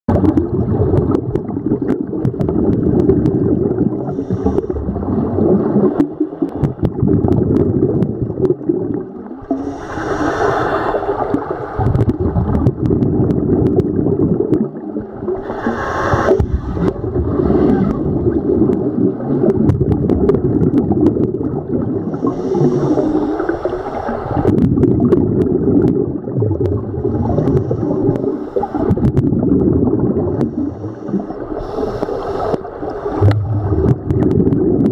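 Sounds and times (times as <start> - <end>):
underwater air bubbling: 0.1 - 34.9
breath rushing through regulator: 9.5 - 11.3, 15.4 - 18.2, 30.4 - 34.3.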